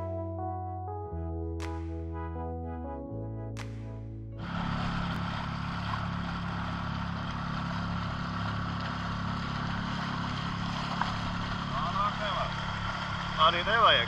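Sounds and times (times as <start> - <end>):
outboard motor humming: 4.4 - 14.0.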